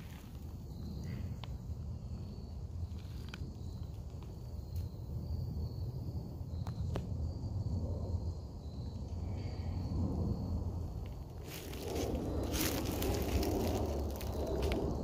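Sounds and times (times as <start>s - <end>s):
faint insect chirring: 0.0s - 15.0s
low microphone rumble: 9.6s - 15.0s.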